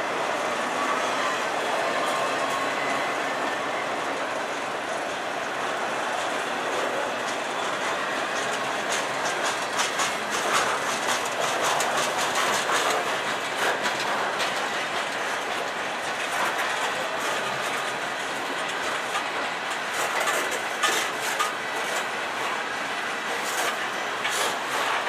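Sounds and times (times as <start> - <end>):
train wheels rumbling on rail: 0.0 - 25.0
train wheels clanking: 6.2 - 22.6, 23.2 - 25.0.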